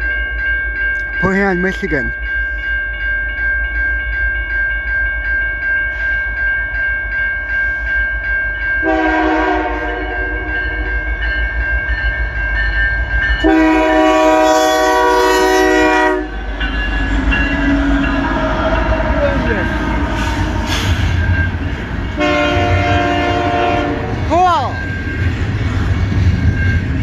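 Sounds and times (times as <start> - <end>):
crossing bell ringing: 0.0 - 27.0
train air horn blasts: 8.8 - 11.1, 13.4 - 16.4, 22.1 - 24.2
locomotive rumble: 12.2 - 27.0.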